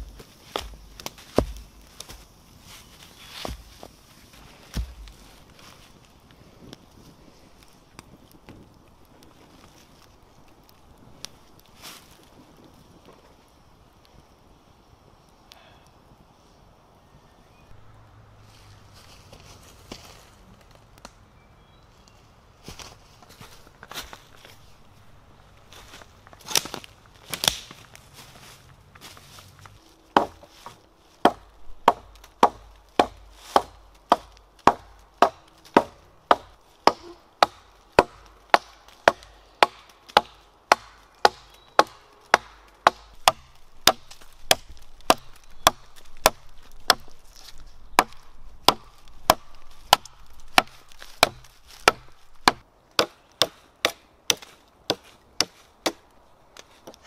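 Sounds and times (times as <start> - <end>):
hatchet chopping wood: 0.4 - 2.2, 4.7 - 5.2, 30.2 - 47.2, 47.9 - 56.0.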